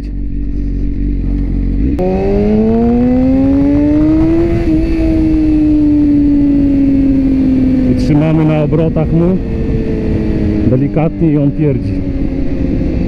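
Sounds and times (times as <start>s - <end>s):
motorcycle engine revving: 0.0s - 13.0s
wind rushing: 2.0s - 8.1s.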